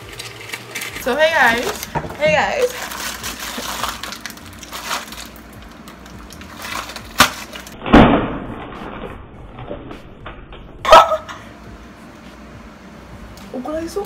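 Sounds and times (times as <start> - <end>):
package being opened: 0.0 - 1.9, 2.6 - 7.8.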